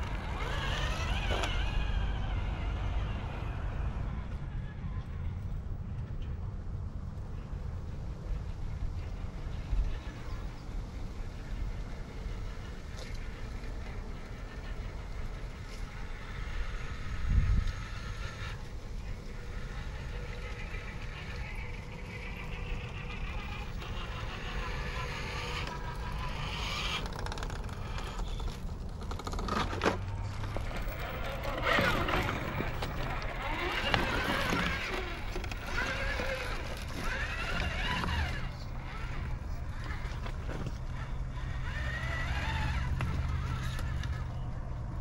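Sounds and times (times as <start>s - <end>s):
electric toy car drivetrain whirring: 0.0s - 4.6s, 8.4s - 45.0s
electric motors whining: 0.0s - 5.2s, 9.0s - 45.0s
wind on the microphone: 16.4s - 18.6s.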